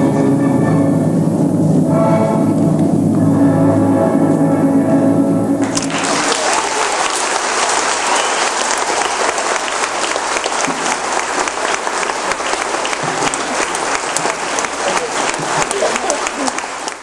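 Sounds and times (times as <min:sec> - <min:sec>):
audience clapping: 0:05.6 - 0:17.0.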